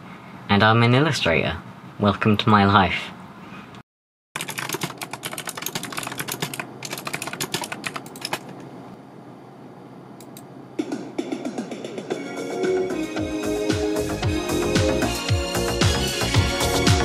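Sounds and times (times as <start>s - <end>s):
rapid keyboard typing: 4.4s - 8.7s
music: 10.8s - 17.0s.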